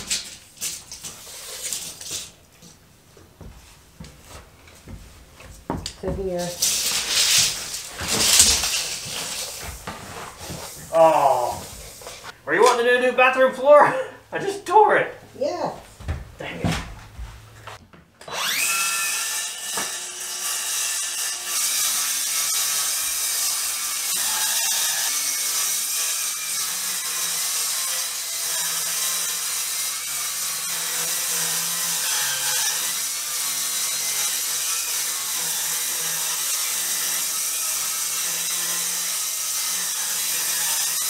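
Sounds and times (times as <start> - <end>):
circular saw cutting: 18.3 - 41.0.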